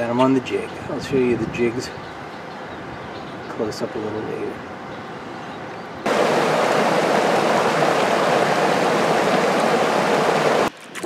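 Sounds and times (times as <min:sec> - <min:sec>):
river water rushing over rocks: 0:06.1 - 0:10.7.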